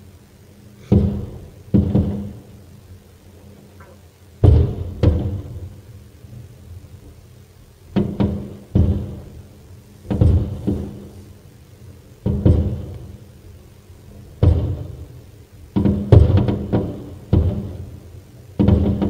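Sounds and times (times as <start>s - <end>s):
firework shells booming: 0.9s - 2.5s, 4.4s - 5.9s, 7.9s - 11.5s, 12.2s - 19.0s.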